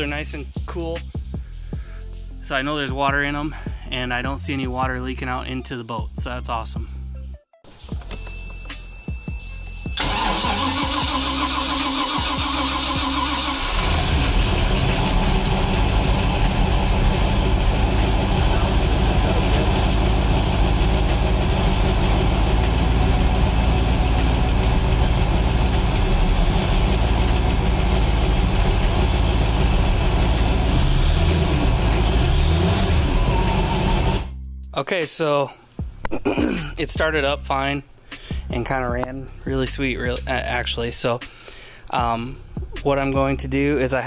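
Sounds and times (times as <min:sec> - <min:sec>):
engine starter cranking: 0:10.0 - 0:16.2
boat engine idling: 0:12.6 - 0:34.3.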